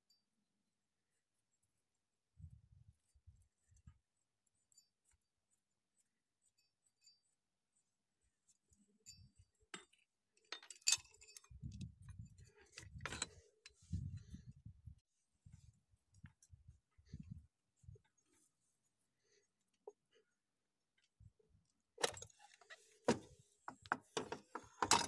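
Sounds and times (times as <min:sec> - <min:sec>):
metal clinks and clicks: 0:09.0 - 0:13.8
dull thumps of tool handling: 0:23.0 - 0:25.0.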